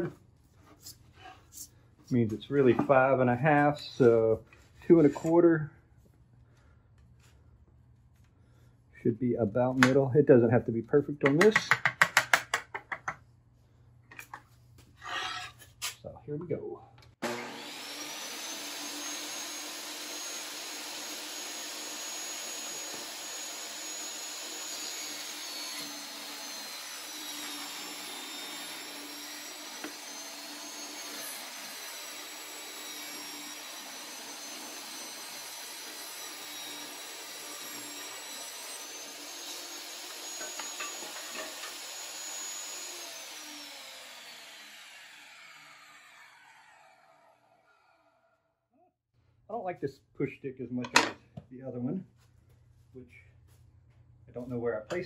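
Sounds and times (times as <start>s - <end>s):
table saw cutting board: 15.0s - 15.6s, 17.2s - 48.3s, 50.8s - 51.2s.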